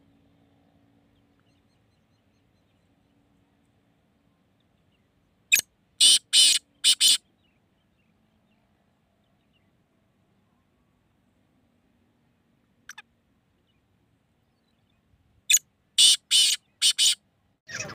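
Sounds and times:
bird harsh grating call: 0:05.5 - 0:07.2, 0:16.0 - 0:17.9.

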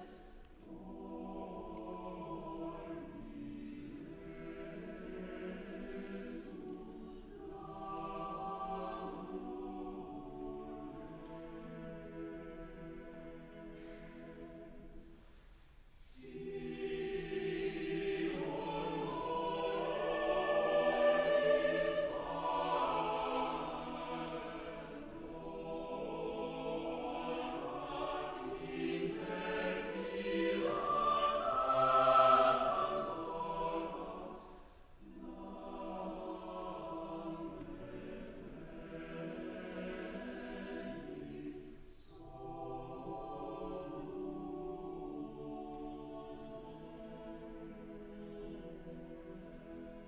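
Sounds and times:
choir singing in harmony: 0:00.0 - 0:50.0.

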